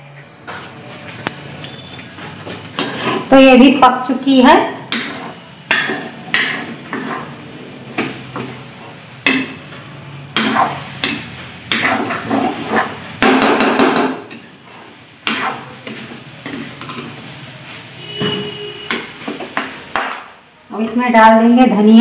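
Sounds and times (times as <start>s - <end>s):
spoon knocking and scraping in a pan: 4.8s - 9.8s, 10.4s - 14.5s.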